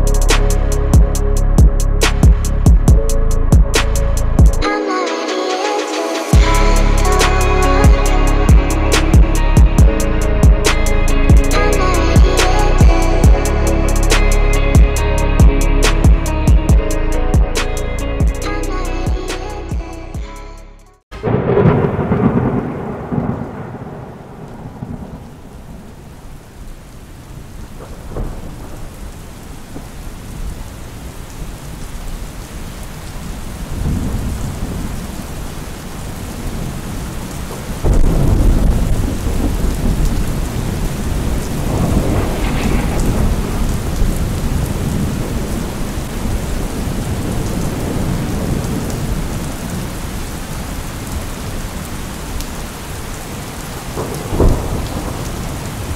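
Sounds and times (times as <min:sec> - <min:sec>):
heavy rain pouring: 0:00.0 - 0:20.2, 0:21.1 - 0:55.9
thunder rumbling: 0:06.3 - 0:18.5, 0:21.1 - 0:55.9
loud thunderclap: 0:21.2 - 0:26.1, 0:27.8 - 0:30.0, 0:33.7 - 0:35.2, 0:37.8 - 0:50.1, 0:53.9 - 0:55.9.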